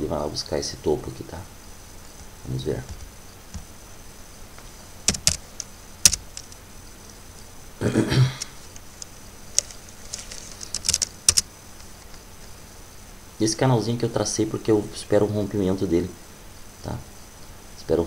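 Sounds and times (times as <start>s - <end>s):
keyboard and mouse clicks: 5.1s - 6.6s, 10.6s - 11.5s.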